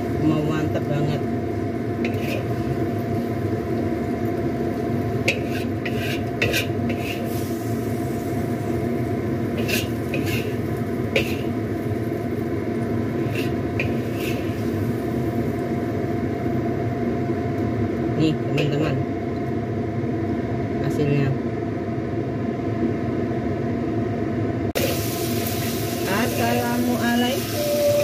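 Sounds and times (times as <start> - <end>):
food sizzling in a wok: 0.0 - 16.8, 24.8 - 28.0.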